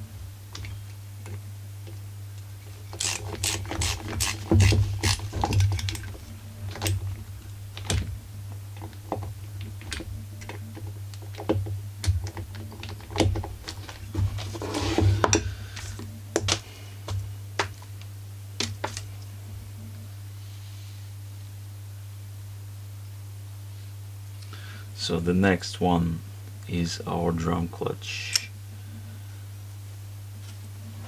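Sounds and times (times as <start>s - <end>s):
steady low hum: 0.0s - 31.0s
work gloves rustling: 1.9s - 19.4s.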